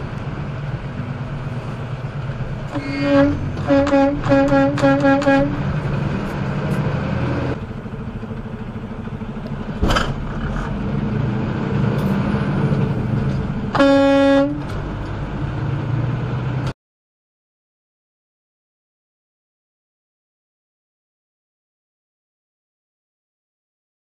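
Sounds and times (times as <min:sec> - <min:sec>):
truck engine running: 0:00.0 - 0:16.7
road noise inside cab: 0:00.0 - 0:16.8
vehicle horn honking: 0:02.7 - 0:05.7, 0:13.7 - 0:14.7.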